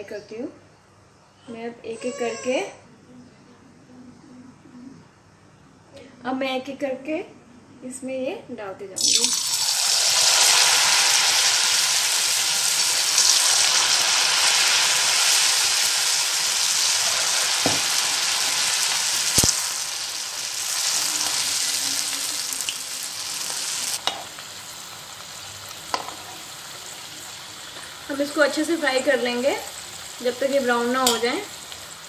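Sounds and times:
deep-frying sizzle in oil: 9.0s - 32.0s
metal spoon clinking on pan: 31.0s - 31.4s.

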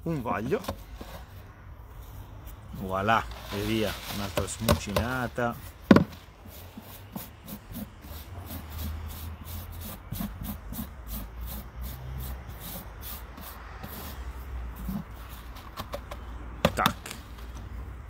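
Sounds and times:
hands stirring damp earth in bucket: 2.0s - 15.6s.

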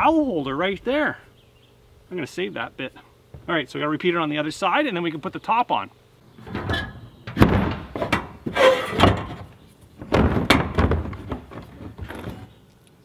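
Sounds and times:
metal brace scraping on frame: 6.4s - 12.6s
metal clanks and knocks: 6.4s - 12.6s.

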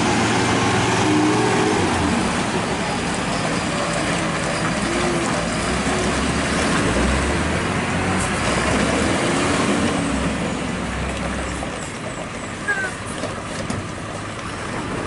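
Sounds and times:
truck diesel engine revving: 0.0s - 11.8s.

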